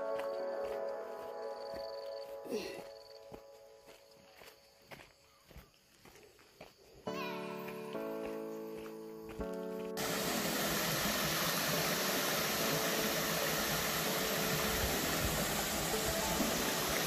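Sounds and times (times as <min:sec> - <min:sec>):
stream rushing over rocks: 0:10.0 - 0:17.0.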